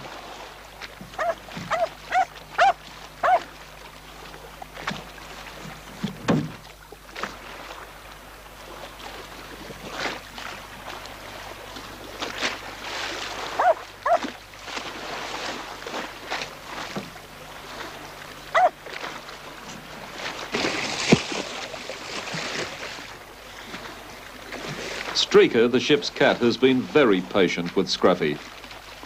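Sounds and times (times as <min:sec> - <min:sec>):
low steady hum: 0:00.0 - 0:29.0
small dog yipping: 0:01.2 - 0:03.5, 0:13.6 - 0:14.3, 0:18.5 - 0:18.8.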